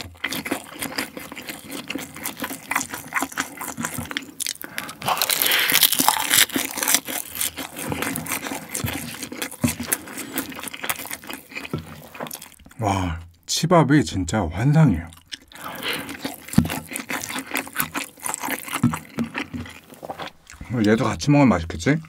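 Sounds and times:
chewing with crunches: 0.0s - 12.8s, 15.0s - 22.0s
wet mouth sounds: 15.1s - 21.0s.

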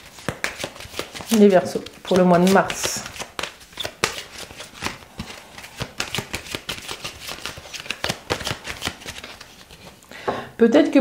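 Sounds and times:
cards being shuffled: 0.0s - 10.0s.

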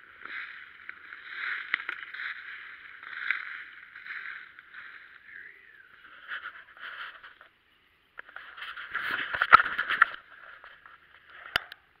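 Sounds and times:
dry leaves rustling and crunching: 0.0s - 7.5s.

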